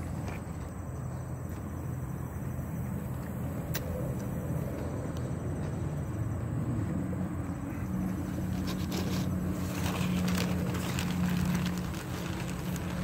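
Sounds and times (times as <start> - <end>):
vehicle engine humming: 0.0 - 13.0
crackly rustling: 8.0 - 13.0.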